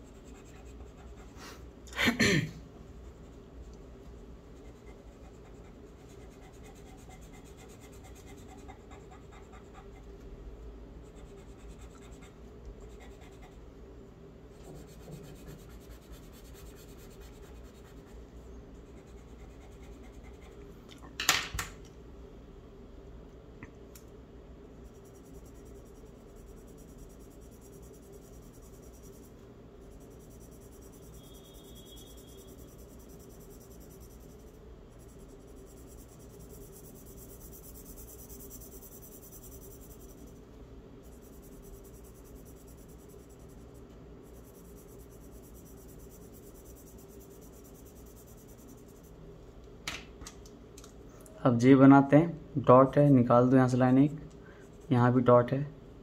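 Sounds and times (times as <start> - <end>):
pencil scratching on paper: 0.0 - 1.6, 4.6 - 10.2, 11.0 - 13.7, 14.5 - 18.2, 18.8 - 20.6, 24.8 - 40.4, 41.0 - 49.2
steady low hum: 0.0 - 56.0.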